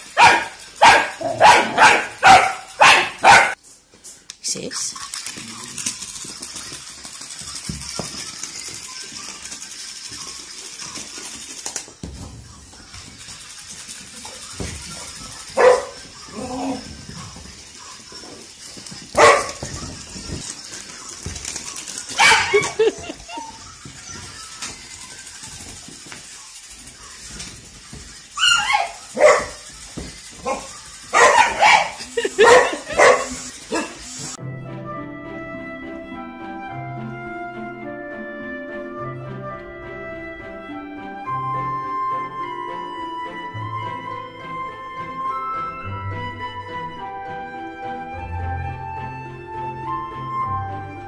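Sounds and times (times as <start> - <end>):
dog barking and yipping: 0.0 - 3.6, 14.3 - 20.4, 21.9 - 24.4, 28.4 - 34.2
toy ball buzzing and rattling: 0.0 - 34.4.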